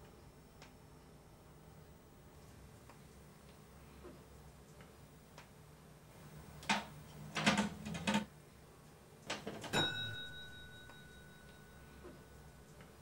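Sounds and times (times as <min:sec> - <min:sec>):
ringing metallic tone: 0:09.8 - 0:12.7.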